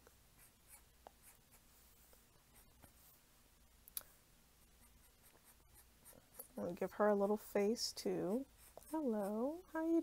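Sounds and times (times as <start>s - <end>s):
marker drawing on paper: 0.4s - 1.7s, 4.6s - 6.6s, 8.2s - 10.0s.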